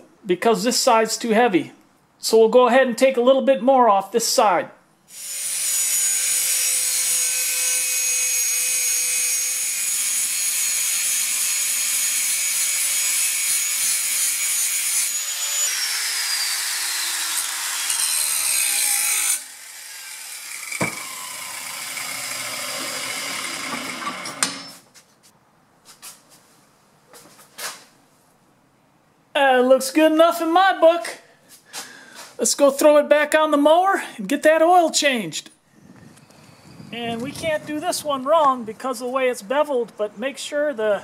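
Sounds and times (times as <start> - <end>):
angle grinder grinding steel: 5.1 - 24.8
whirring and scraping: 15.1 - 25.0
single knock: 20.8 - 21.0.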